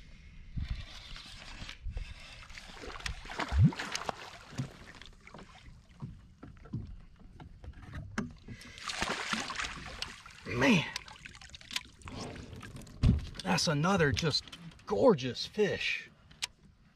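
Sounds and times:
water splashing: 2.6s - 6.1s, 8.6s - 12.9s.

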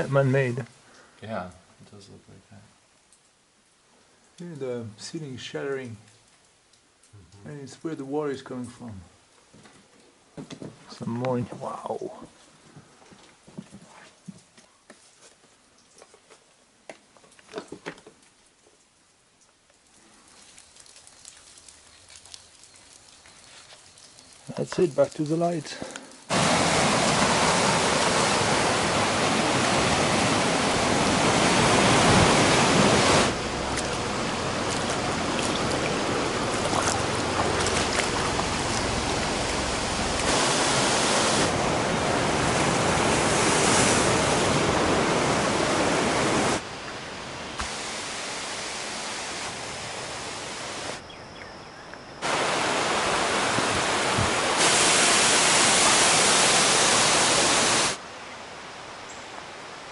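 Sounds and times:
stream water rushing over rocks: 24.5s - 51.0s, 52.2s - 58.8s.

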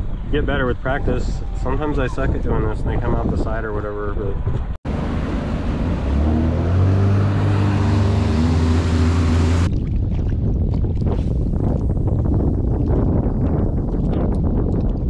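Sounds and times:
wind on microphone: 0.0s - 15.0s
jet ski engine running: 4.9s - 9.7s.

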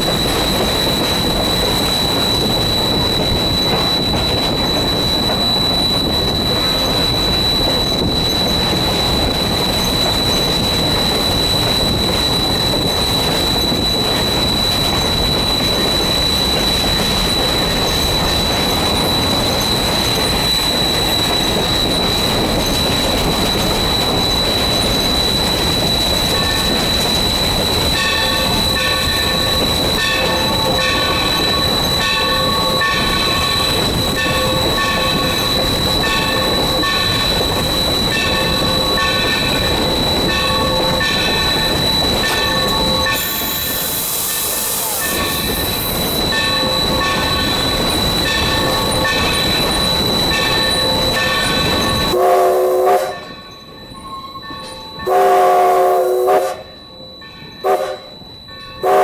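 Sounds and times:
high-pitched whine: 0.0s - 59.0s.

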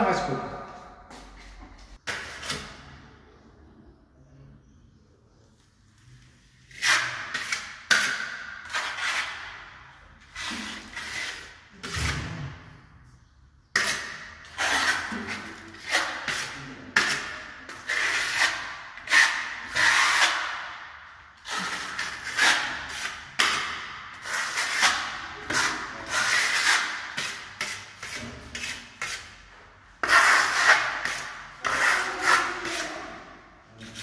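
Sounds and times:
metal trowel scraping paint: 6.6s - 12.6s, 13.7s - 20.8s, 21.4s - 29.4s, 30.0s - 34.0s.

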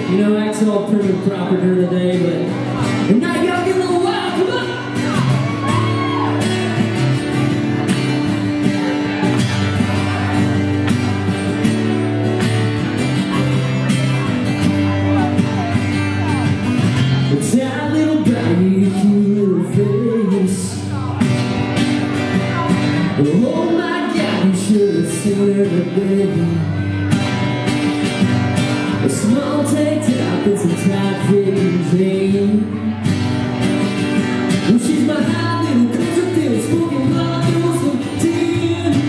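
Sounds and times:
man singing: 0.0s - 6.8s, 13.3s - 27.3s, 28.7s - 33.2s, 34.4s - 39.0s
acoustic guitars strumming: 0.0s - 39.0s.

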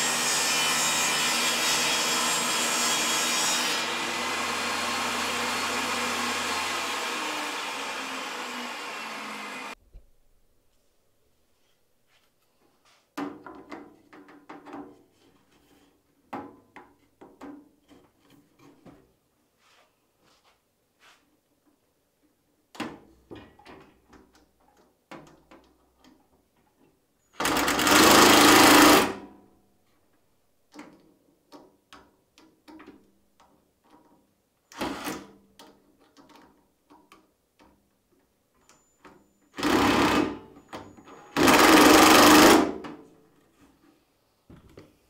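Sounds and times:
cordless drill driving screws: 27.4s - 29.2s, 34.7s - 35.3s, 39.6s - 40.4s, 41.3s - 42.7s.

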